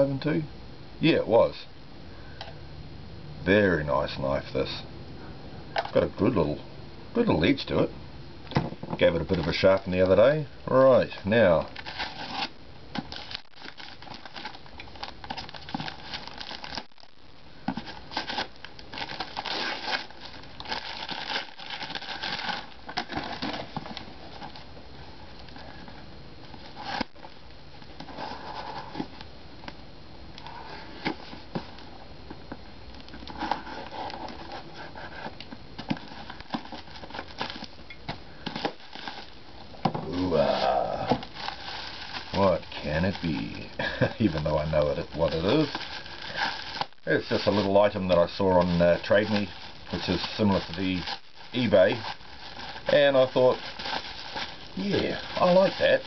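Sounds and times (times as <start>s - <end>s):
paper crinkling and tearing: 9.0s - 10.2s, 11.6s - 17.1s, 17.7s - 24.6s, 38.4s - 39.4s, 40.0s - 56.0s.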